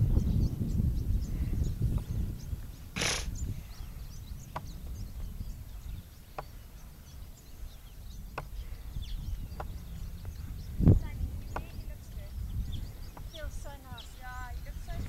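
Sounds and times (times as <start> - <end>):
small birds chirping: 0.0 - 15.0
wind rumbling on microphone: 0.0 - 15.0.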